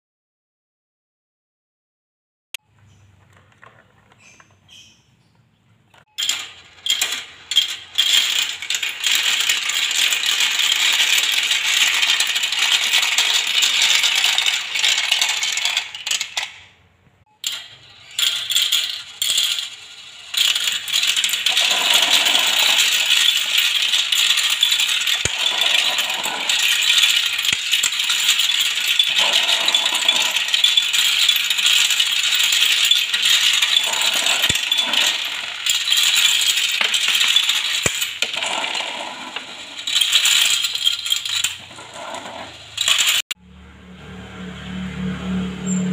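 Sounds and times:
plastic balls clattering down tracks: 6.0s - 16.7s, 17.4s - 43.4s.

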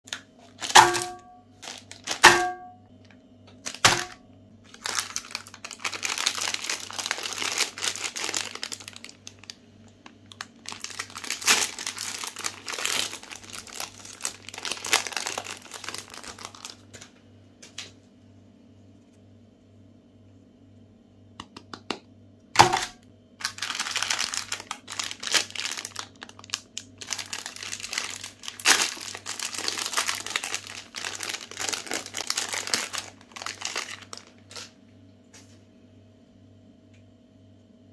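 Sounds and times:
plastic wrapper crinkling and tearing: 0.1s - 17.9s, 22.6s - 34.8s.

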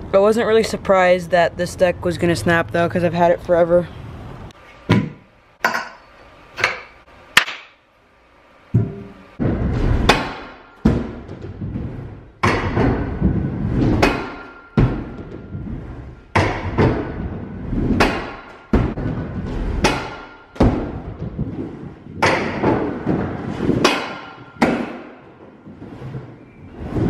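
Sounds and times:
rolling rumble through hollow ramp: 9.3s - 10.2s, 10.8s - 23.9s.

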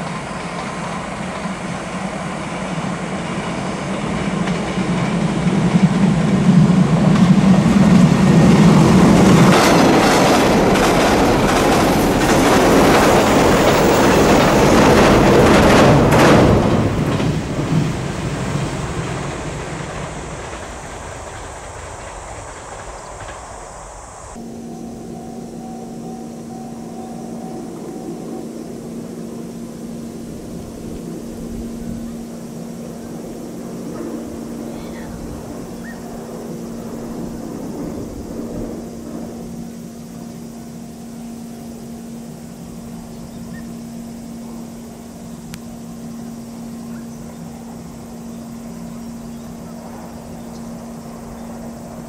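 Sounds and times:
train wheels clattering: 0.0s - 24.0s
train passing at speed: 0.0s - 52.0s.

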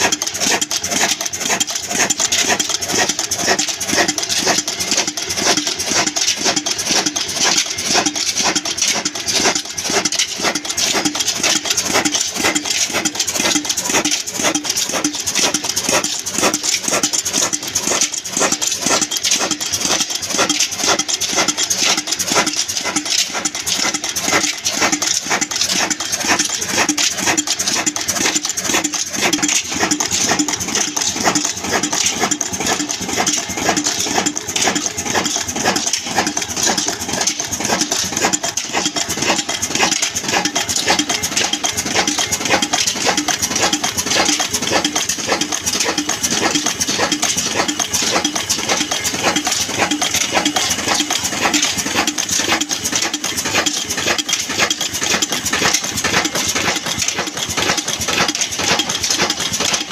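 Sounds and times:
diesel engine clattering: 0.0s - 59.9s.

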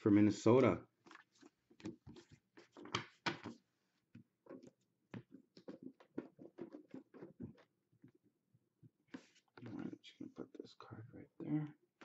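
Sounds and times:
cards tapping on tabletop: 2.8s - 3.6s.

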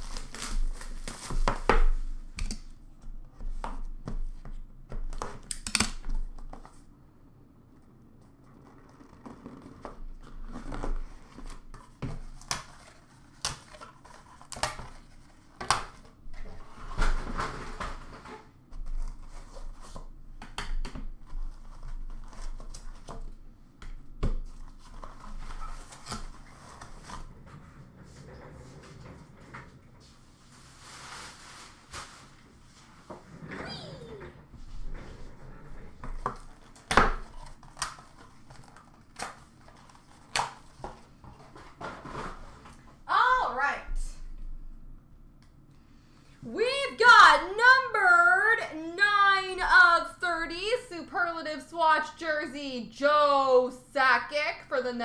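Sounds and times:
plastic wrap crinkling and tearing: 0.0s - 2.0s.

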